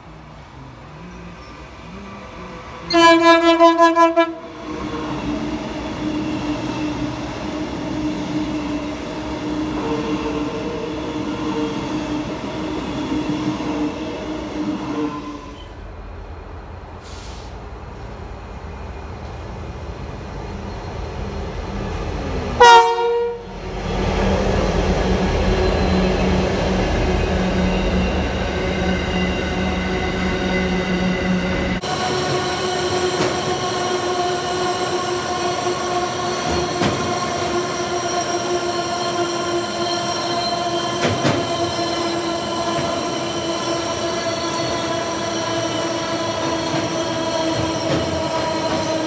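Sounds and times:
freight train rumble: 0.0s - 49.0s
loud train horn blast: 2.8s - 4.6s, 22.6s - 23.6s.

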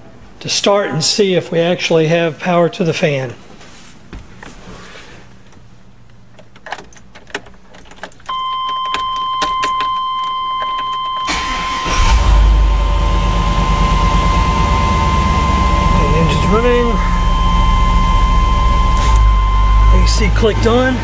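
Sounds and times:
keys jangling in ignition: 6.3s - 11.8s
high-pitched warning tone: 8.3s - 21.0s
truck engine starting and idling: 11.2s - 21.0s.

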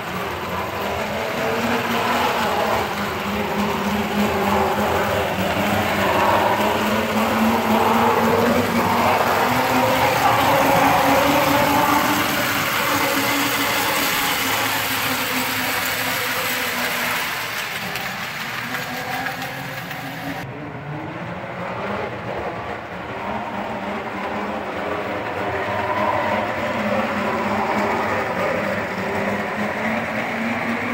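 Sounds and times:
wheels rattling over rails: 0.0s - 20.5s, 21.5s - 30.9s
toy train motor whirring: 0.1s - 20.4s.

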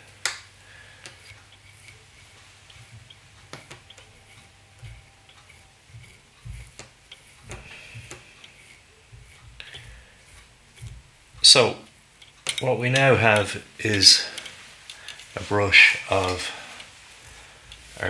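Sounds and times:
fingers picking fibres: 0.0s - 18.0s
soft low thumps: 4.7s - 8.4s, 9.0s - 11.5s.

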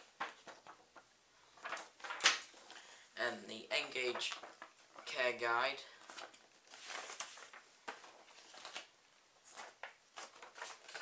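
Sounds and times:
paper rustling: 0.0s - 2.9s, 3.6s - 11.0s
paper flicks: 0.1s - 2.7s.

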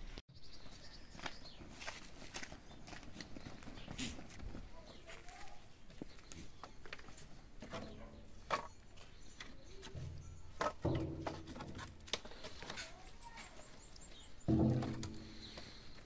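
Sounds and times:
firewood branches knocking: 14.5s - 15.8s.

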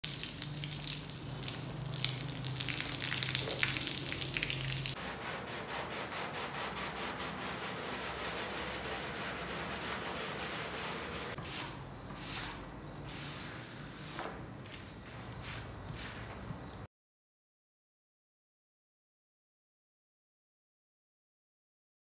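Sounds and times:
water jet spraying onto rug: 0.0s - 5.0s
brush scrubbing wet rug: 0.0s - 16.8s.

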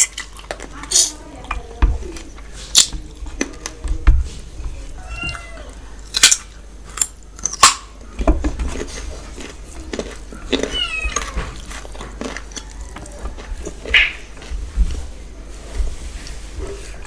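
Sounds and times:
lip smacks and chewing: 8.7s - 14.6s.

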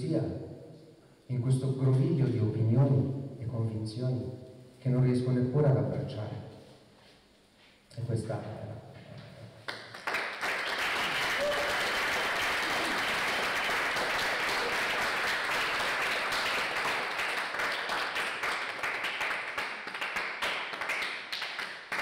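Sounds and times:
audience applauding: 9.7s - 22.0s.

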